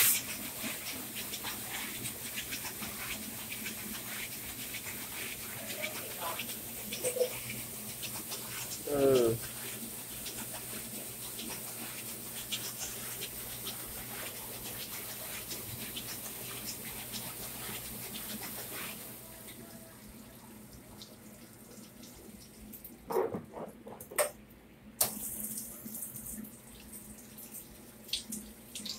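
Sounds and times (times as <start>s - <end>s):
water spraying hiss: 0.0s - 19.2s
drips and splashes: 20.7s - 23.0s, 25.0s - 28.9s.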